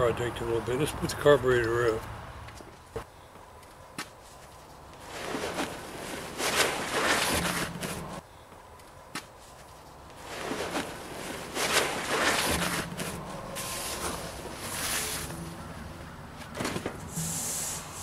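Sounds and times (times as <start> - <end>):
canvas cover rustling and flapping: 4.3 - 8.2, 9.4 - 15.4.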